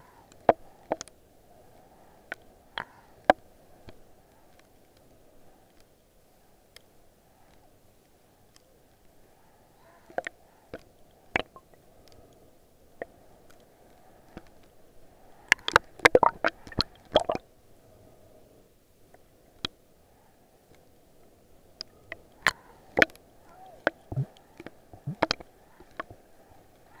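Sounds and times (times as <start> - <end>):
muffled underwater wash: 9.1 - 27.0.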